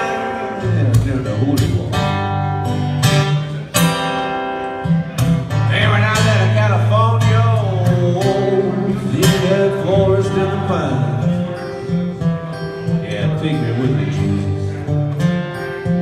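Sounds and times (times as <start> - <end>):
man singing: 0.0 - 2.2, 5.6 - 11.8, 12.9 - 14.9
acoustic guitar blues: 0.0 - 16.0.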